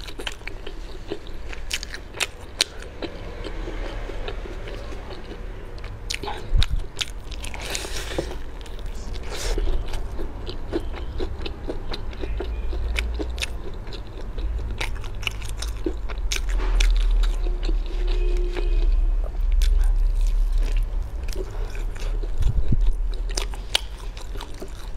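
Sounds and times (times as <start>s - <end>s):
crunchy chewing: 0.0s - 24.9s.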